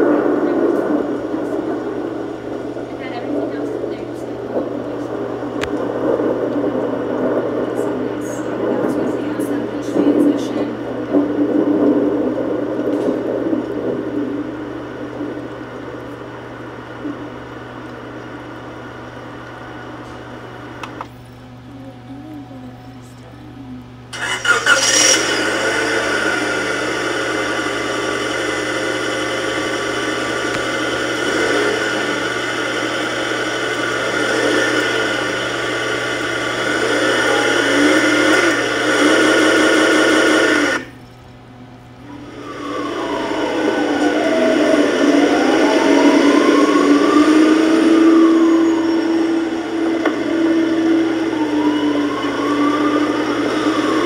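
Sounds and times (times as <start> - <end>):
vehicle engine: 0.0 - 41.2, 41.9 - 54.0
siren wailing: 24.1 - 40.9, 42.0 - 54.0.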